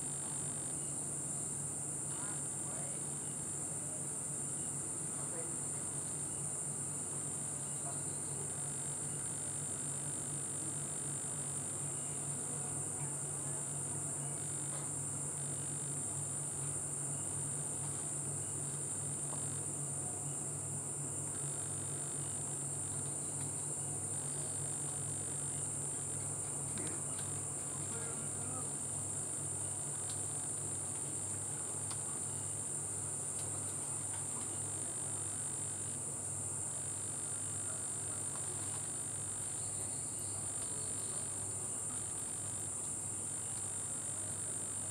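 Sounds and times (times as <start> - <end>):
night insects chorus: 0.0 - 44.9.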